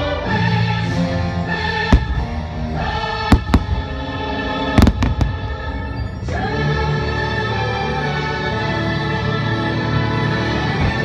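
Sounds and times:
music with choir singing: 0.0s - 11.0s
firework bangs: 3.2s - 6.0s.

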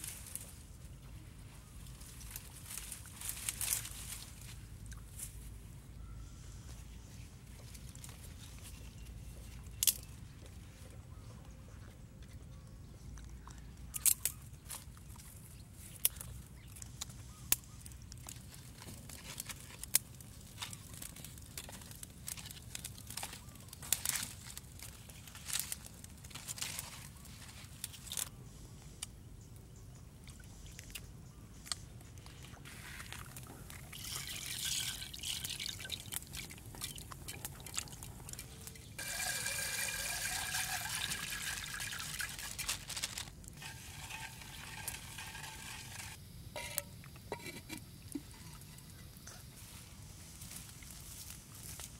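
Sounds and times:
rice pouring into water: 34.0s - 36.3s, 39.0s - 42.9s, 43.6s - 46.2s.

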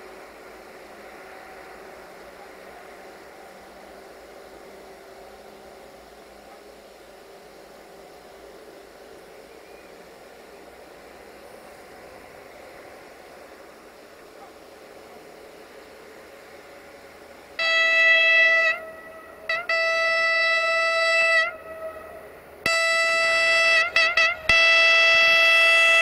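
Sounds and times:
faint steady noise: 0.0s - 26.0s
train horn blasts: 17.6s - 26.0s.

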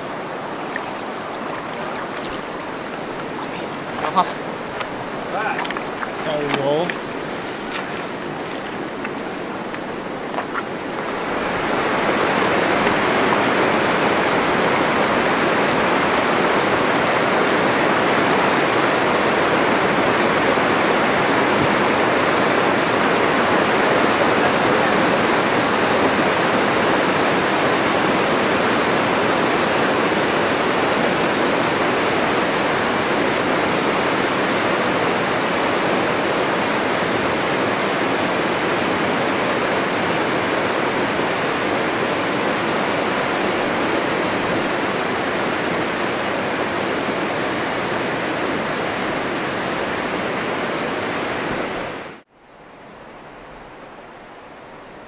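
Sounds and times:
whitewater rapids rushing: 0.0s - 52.2s
quiet river noise: 0.0s - 55.0s.

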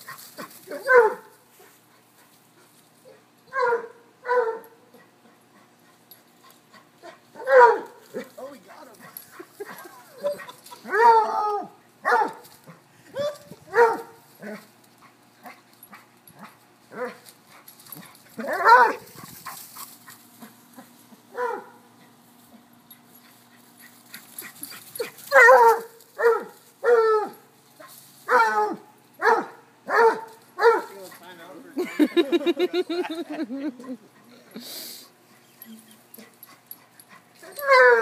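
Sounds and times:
dog barking: 0.8s - 1.3s, 3.5s - 4.7s, 7.4s - 8.0s, 12.0s - 12.4s, 13.2s - 14.2s, 18.4s - 19.0s, 21.3s - 21.8s, 25.3s - 27.2s, 28.3s - 30.9s.

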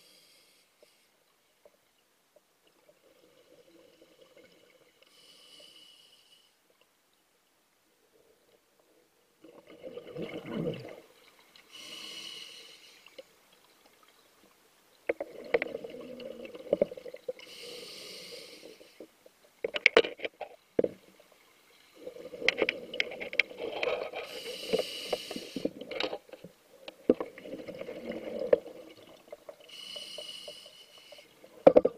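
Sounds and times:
exhaled bubbles rushing: 9.5s - 11.2s, 15.2s - 17.4s, 27.2s - 29.4s
regulator inhalation hiss: 11.8s - 13.0s, 17.4s - 19.0s, 24.3s - 25.7s, 29.7s - 31.3s.

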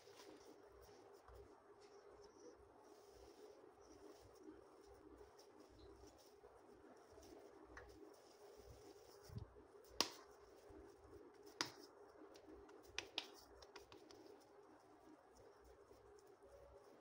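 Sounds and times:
faint low hum: 0.0s - 17.0s
hands patting meat mixture: 9.8s - 10.4s, 11.4s - 14.3s.

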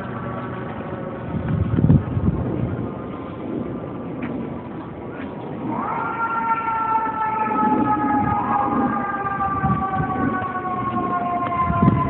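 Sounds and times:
low traffic rumble: 0.0s - 12.0s
fire engine siren wailing: 5.6s - 12.0s.

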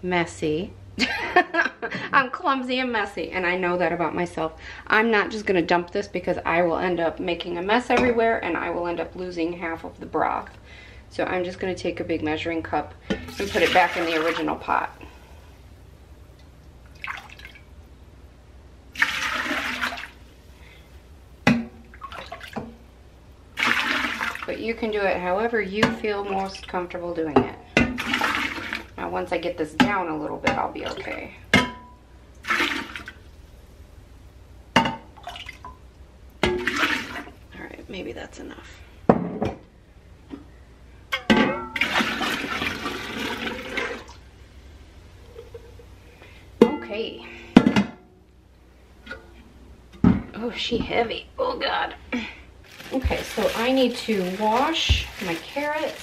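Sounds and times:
broth splashing into pot: 13.1s - 14.6s, 18.9s - 20.3s, 23.6s - 24.6s, 32.4s - 33.2s, 36.4s - 37.4s.

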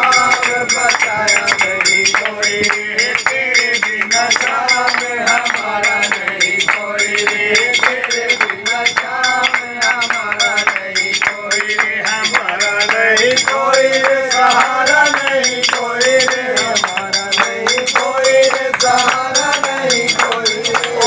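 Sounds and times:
hand-clapping: 0.0s - 21.0s
men singing devotional song: 0.0s - 21.0s.

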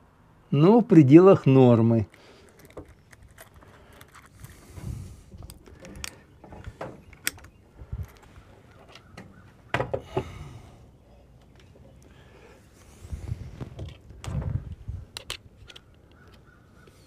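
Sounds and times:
small handling clicks: 2.1s - 4.6s, 5.4s - 9.1s, 15.1s - 16.5s.

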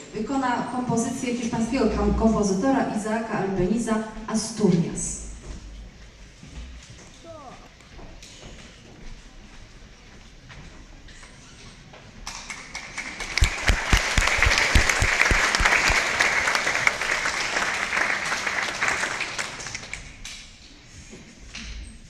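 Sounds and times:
audience applauding: 12.2s - 20.3s
low thumps: 13.4s - 16.0s.

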